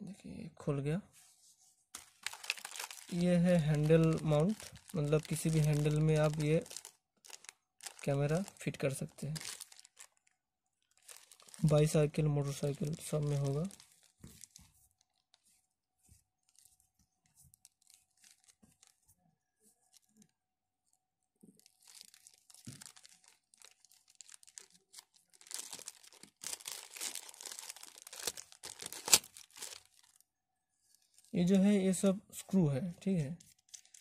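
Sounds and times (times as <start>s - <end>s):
plastic packet crinkling: 2.0s - 15.3s, 17.4s - 19.0s, 21.6s - 30.2s, 33.4s - 34.0s.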